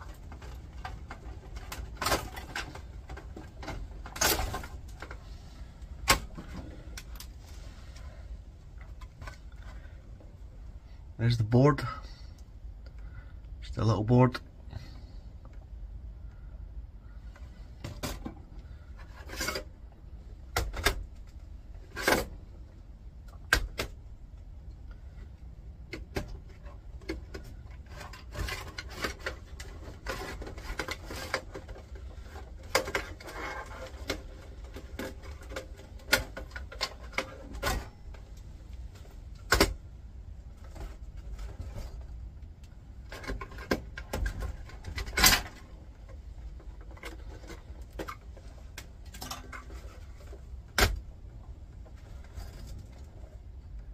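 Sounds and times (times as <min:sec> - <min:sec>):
metal parts clunking and knocking: 0:00.0 - 0:07.4, 0:25.8 - 0:39.9, 0:43.0 - 0:51.2.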